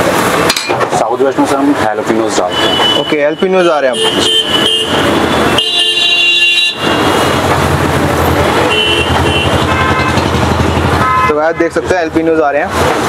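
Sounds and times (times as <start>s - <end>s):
vehicle horns honking: 2.4s - 7.5s, 8.2s - 11.8s
vehicle engine rumble: 6.8s - 13.0s.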